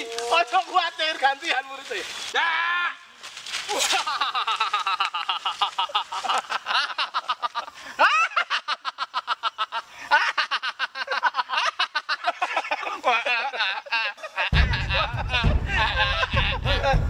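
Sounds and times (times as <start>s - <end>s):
man laughing: 3.7s - 17.0s.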